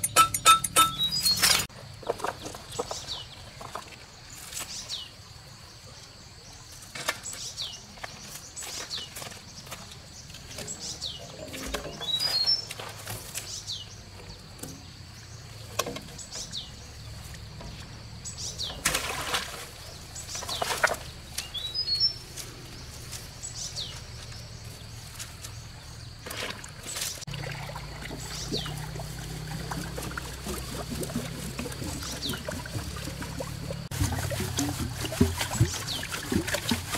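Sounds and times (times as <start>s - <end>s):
water splashing: 18.8s - 21.4s, 26.2s - 36.9s.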